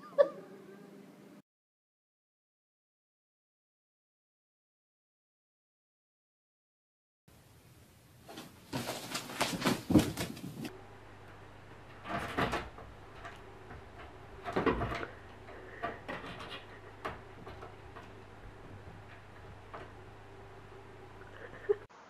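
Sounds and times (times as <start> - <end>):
cat scrabbling on door: 12.0 - 20.1.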